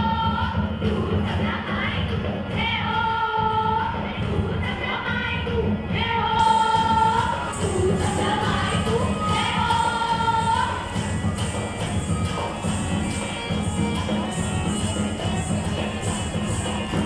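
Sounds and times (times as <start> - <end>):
high singing voice: 0.0 - 17.0.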